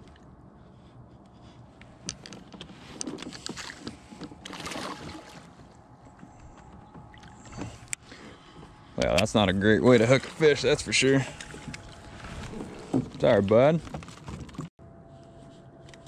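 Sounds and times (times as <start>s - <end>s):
handling clicks and knocks: 1.8s - 4.6s, 12.5s - 14.7s.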